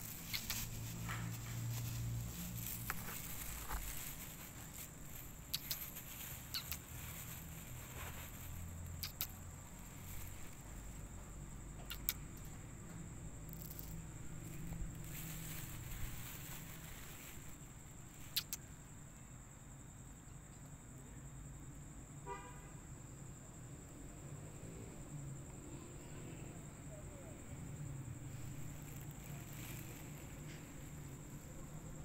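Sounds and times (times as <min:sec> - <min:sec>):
low traffic rumble: 0:00.0 - 0:32.0
sharp clicks: 0:05.5 - 0:06.8, 0:09.0 - 0:09.4, 0:11.8 - 0:12.5.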